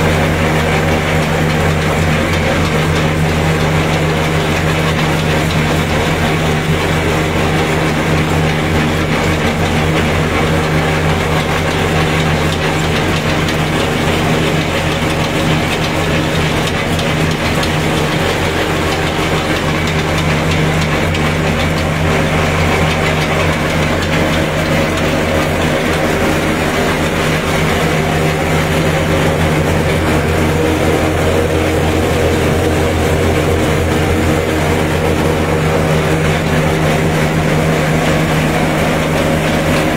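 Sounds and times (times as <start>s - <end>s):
dense noisy clatter: 0.0s - 39.9s
shelling machine mechanical drone: 0.0s - 39.9s.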